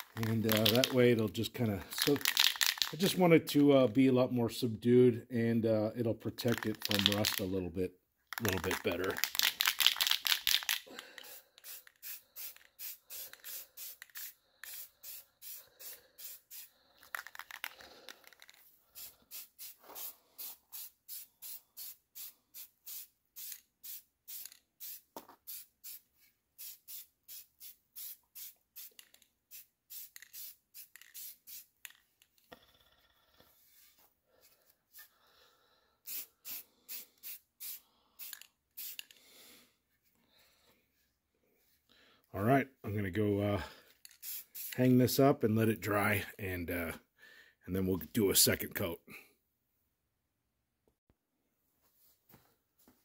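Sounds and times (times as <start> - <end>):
spray paint can hissing spurts: 0.0 - 1.0, 2.0 - 3.0, 6.4 - 7.5, 8.4 - 26.0, 26.6 - 32.0, 36.1 - 39.2, 44.0 - 44.8.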